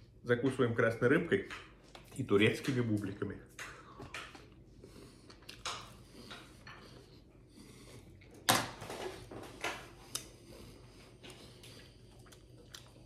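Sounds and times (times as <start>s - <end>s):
person chewing: 4.1s - 8.5s, 9.6s - 13.0s.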